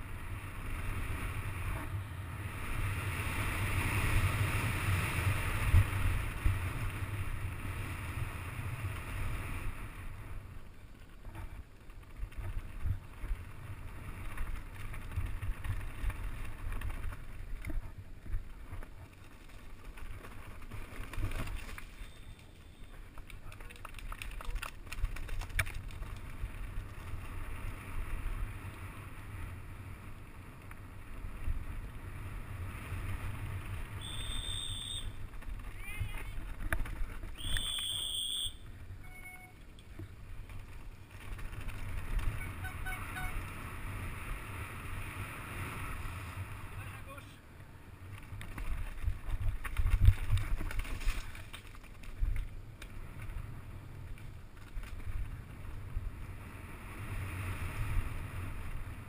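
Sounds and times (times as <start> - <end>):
mountain bike rumbling and rattling: 0.0 - 59.0
bike clicks and knocks: 14.2 - 27.4, 35.2 - 38.0, 48.1 - 53.4, 54.0 - 55.4.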